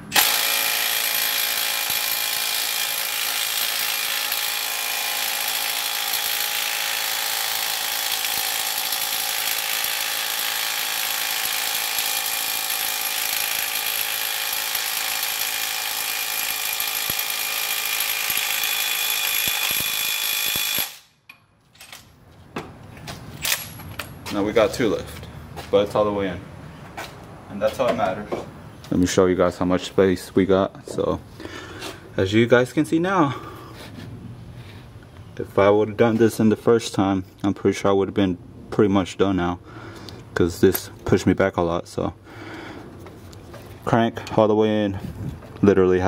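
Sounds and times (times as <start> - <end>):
impact wrench hammering: 0.0 - 21.5.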